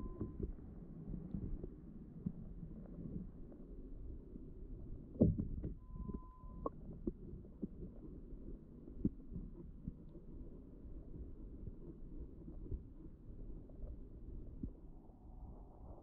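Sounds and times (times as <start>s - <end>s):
short steady beep: 0.0s - 0.4s, 5.8s - 6.7s.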